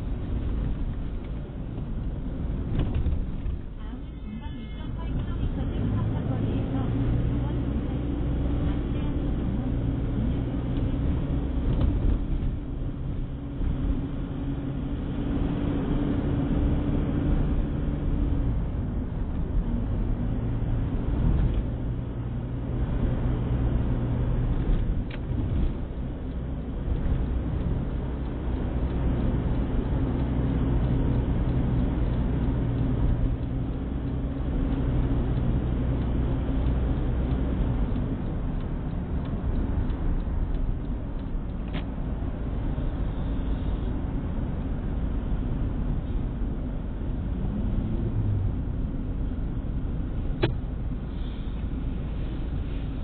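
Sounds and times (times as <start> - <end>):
car engine and road noise: 0.0 - 53.0
faint ticks: 24.7 - 44.8.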